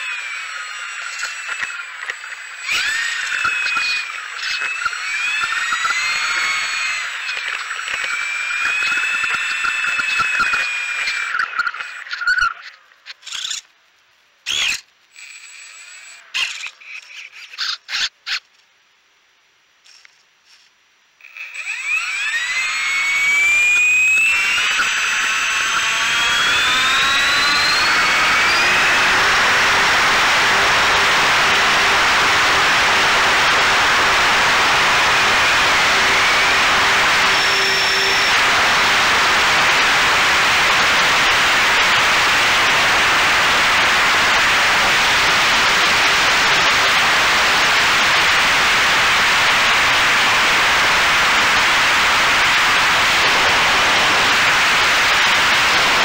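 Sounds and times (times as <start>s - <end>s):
electric motor whine: 0.0s - 12.4s, 21.2s - 56.0s
propeller wash and wind hiss: 27.8s - 56.0s.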